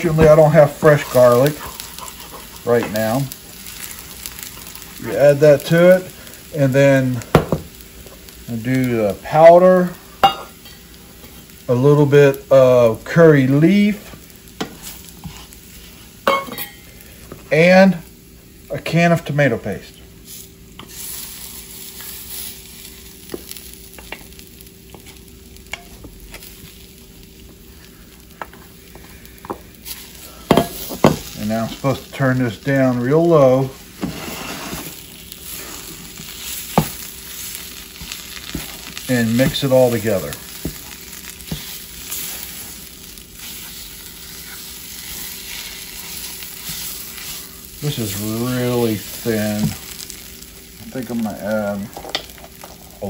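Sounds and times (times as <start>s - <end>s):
wooden spatula stirring in pan: 0.0s - 6.4s, 13.5s - 16.2s, 20.3s - 50.5s
spices frying in oil sizzling: 0.0s - 53.0s
wooden spoon scraping bowl: 34.0s - 36.0s.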